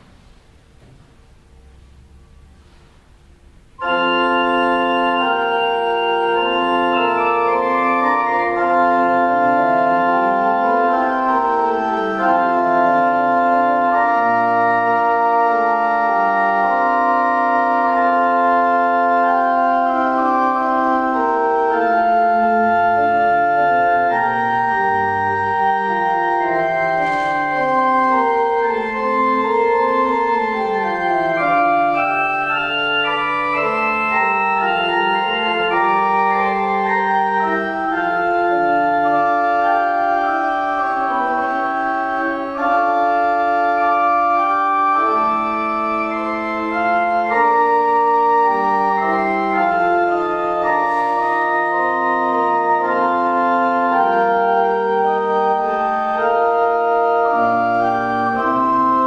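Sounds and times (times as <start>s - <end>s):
church organ chords: 0.0s - 59.0s.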